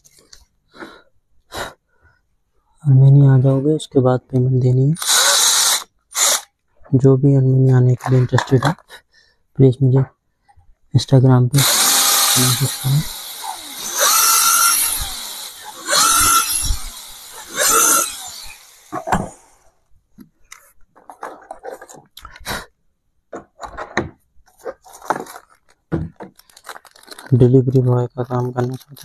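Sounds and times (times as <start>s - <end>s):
cordless drill boring into wood: 5.0s - 6.5s, 11.6s - 19.6s
hardware clicks and knocks: 23.3s - 26.5s.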